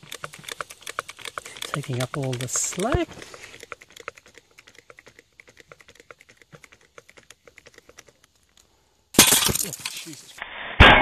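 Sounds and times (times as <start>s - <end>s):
faint rapid light clicks: 0.0s - 8.7s.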